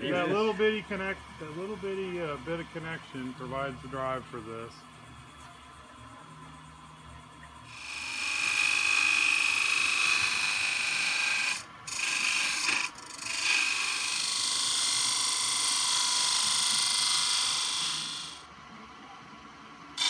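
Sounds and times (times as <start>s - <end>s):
lathe high whine: 0.0s - 5.4s, 6.7s - 18.5s
gouge cutting spinning wood: 7.7s - 18.4s.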